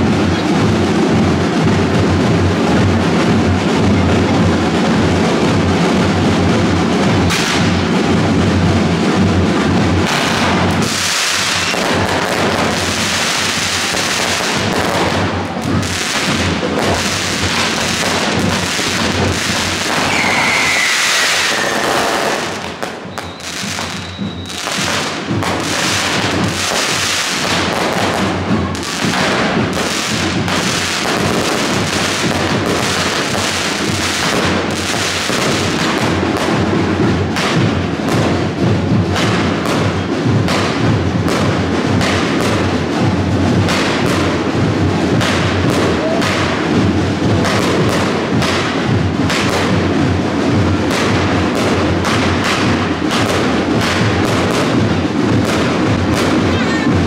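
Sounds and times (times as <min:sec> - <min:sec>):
fireworks crackling and popping: 0:00.0 - 0:57.0
falling firework whistle: 0:19.8 - 0:25.0, 0:45.8 - 0:46.6.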